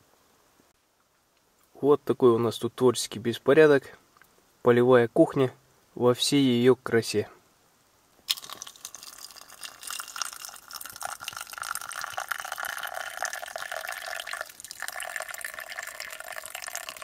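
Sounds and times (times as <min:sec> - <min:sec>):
water pouring into mug: 0:08.3 - 0:17.0.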